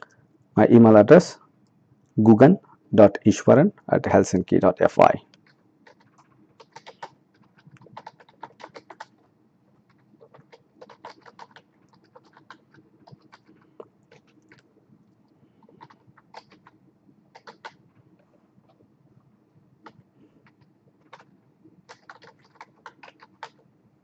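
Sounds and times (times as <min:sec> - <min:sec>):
computer keyboard typing: 0:05.4 - 0:14.7, 0:15.6 - 0:17.9, 0:19.8 - 0:23.6.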